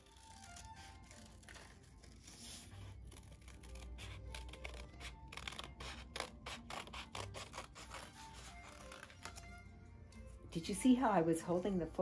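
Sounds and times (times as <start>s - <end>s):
scissors snipping paper: 3.0s - 9.2s.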